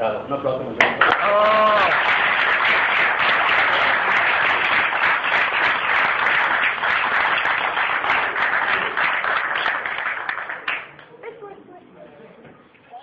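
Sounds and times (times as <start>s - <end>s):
people applauding: 0.9s - 11.1s.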